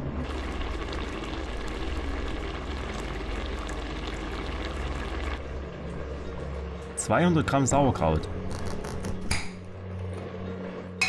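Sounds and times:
sauce bubbles popping: 0:00.2 - 0:05.4.

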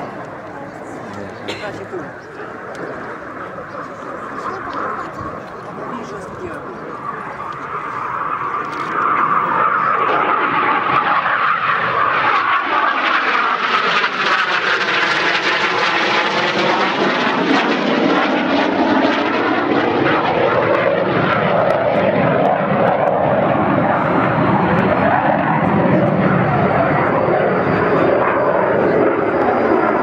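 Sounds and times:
jet engine roaring overhead: 0:00.0 - 0:30.0.

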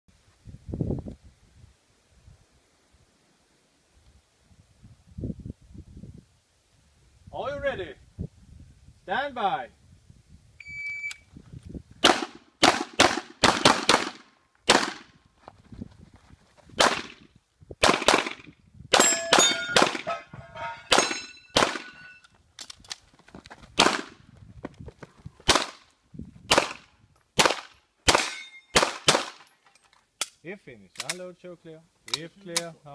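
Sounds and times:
shot timer beep: 0:10.6 - 0:11.2
pistol shots: 0:12.0 - 0:15.1, 0:16.8 - 0:17.2, 0:17.8 - 0:20.1, 0:20.9 - 0:22.0, 0:23.8 - 0:24.1, 0:25.5 - 0:25.8, 0:26.5 - 0:26.8, 0:27.4 - 0:29.4
steel targets ringing: 0:19.0 - 0:22.3, 0:28.2 - 0:28.8.

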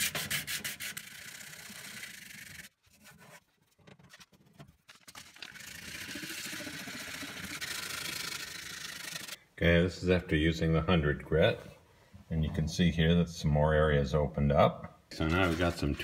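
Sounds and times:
sandpaper scratching on metal: 0:00.0 - 0:03.4, 0:15.2 - 0:16.0.

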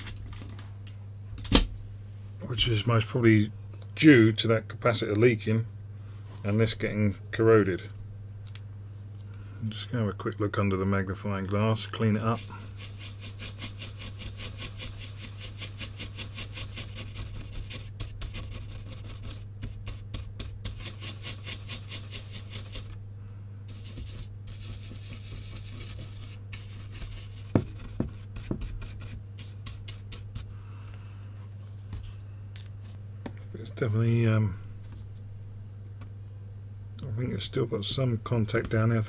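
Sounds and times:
steady low hum: 0:00.0 - 0:39.0
brush scrubbing circuit board: 0:12.0 - 0:23.0, 0:23.7 - 0:30.5.

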